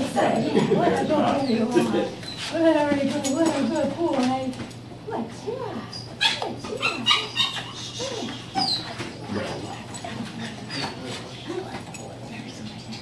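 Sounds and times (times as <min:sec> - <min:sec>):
dog whining and yelping: 0:05.9 - 0:09.2.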